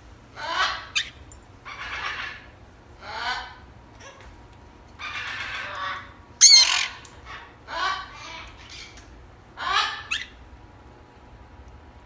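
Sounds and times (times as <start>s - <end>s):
parrots squawking: 0.4s - 4.3s, 5.0s - 10.4s.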